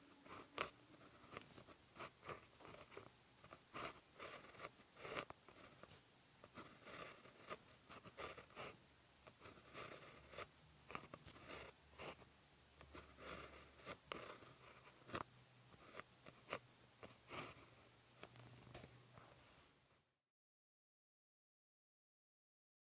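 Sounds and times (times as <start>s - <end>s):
pen scratching on paper: 0.2s - 18.4s.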